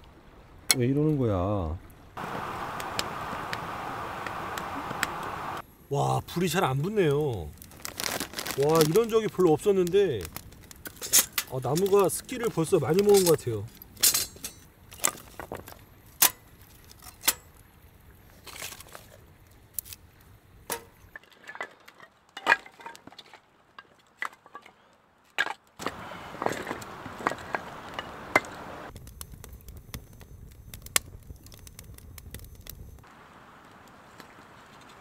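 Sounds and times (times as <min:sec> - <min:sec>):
wood fire crackling: 0:00.0 - 0:35.0
fire rushing: 0:02.2 - 0:14.4, 0:25.8 - 0:35.0.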